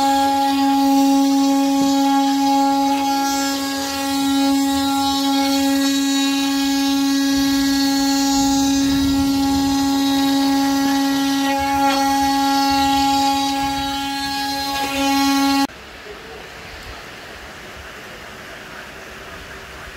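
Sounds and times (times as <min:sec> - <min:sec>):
router spindle whine: 0:00.0 - 0:15.7.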